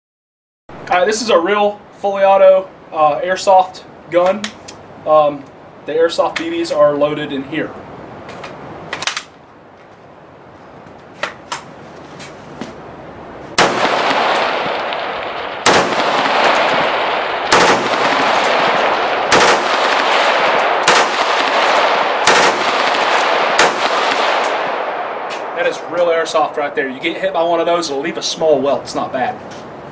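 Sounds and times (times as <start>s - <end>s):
rifle shots with rolling echo: 13.6s - 26.8s.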